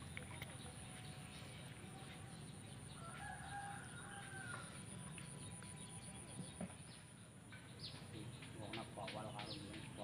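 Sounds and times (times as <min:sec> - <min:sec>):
rooster crowing: 0:03.0 - 0:04.8.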